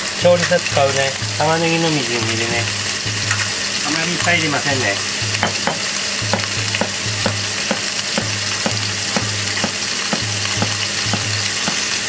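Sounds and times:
chicken wings sizzling: 0:00.0 - 0:12.0
knife chopping on plastic board: 0:05.4 - 0:11.8.

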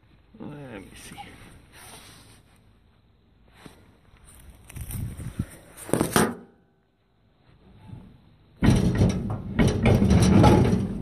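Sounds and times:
rubbing and scraping on microphone: 0:03.6 - 0:06.2.

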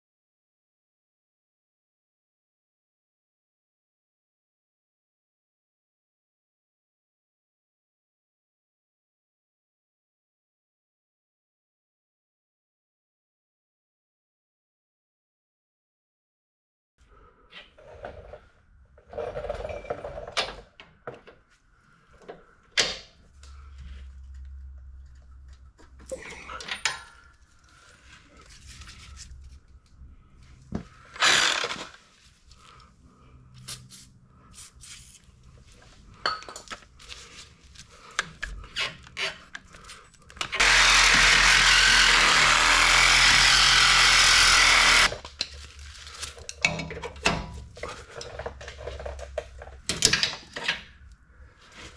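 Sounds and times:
power saw cutting bolt: 0:31.1 - 0:32.0, 0:40.4 - 0:45.2
tools knocking and clanking: 0:46.6 - 0:50.9.

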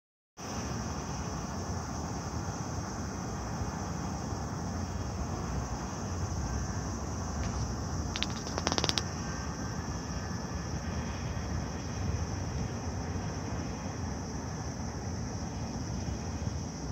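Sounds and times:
distant road traffic hum: 0:00.4 - 0:16.9
high-pitched hiss: 0:00.4 - 0:16.9
clicks: 0:08.2 - 0:09.0.

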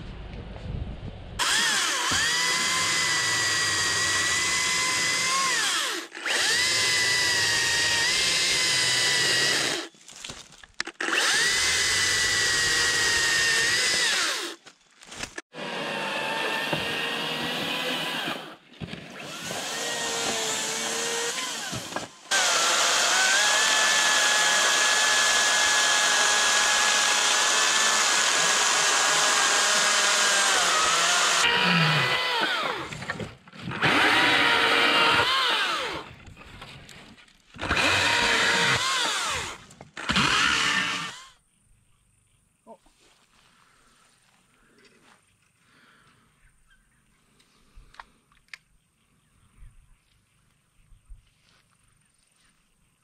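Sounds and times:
electric chainsaw cutting log: 0:01.4 - 0:09.9, 0:10.9 - 0:36.2, 0:37.6 - 0:41.4.

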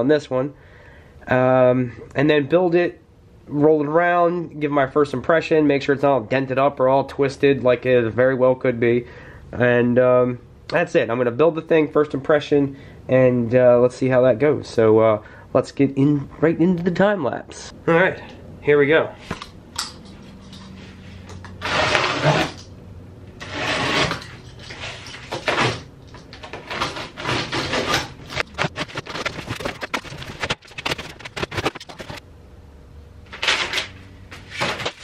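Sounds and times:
cardboard and plastic rustling: 0:23.4 - 0:32.2, 0:33.3 - 0:35.0.

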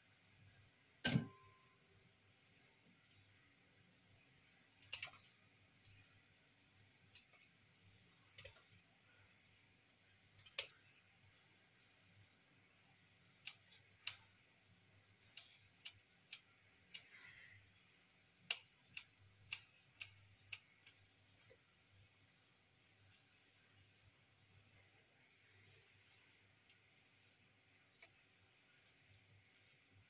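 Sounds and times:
scissors snipping: 0:13.4 - 0:14.3, 0:15.3 - 0:17.2, 0:18.4 - 0:21.5.

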